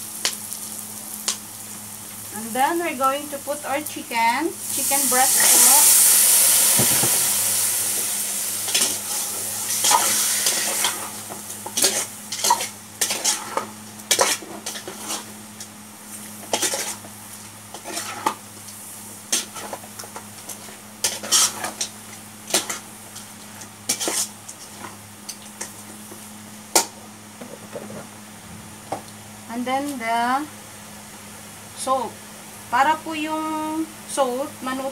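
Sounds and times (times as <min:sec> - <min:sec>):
chicken sizzling in hot oil: 0:00.0 - 0:27.3
metal ladle scraping a pot: 0:21.0 - 0:21.8.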